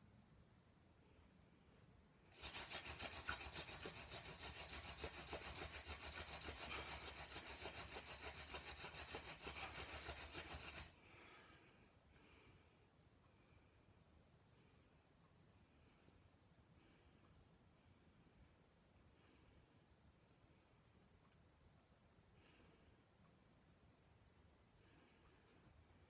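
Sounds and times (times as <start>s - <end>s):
rhythmic dry scraping of spindle: 2.3s - 11.0s.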